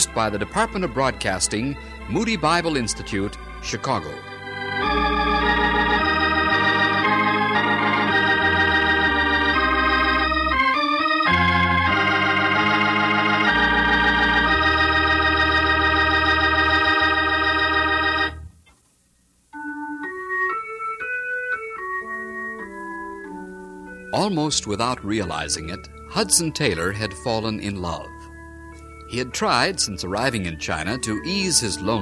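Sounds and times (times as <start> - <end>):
quiet single organ notes: 0.0 - 18.6
organ chords: 0.0 - 32.0.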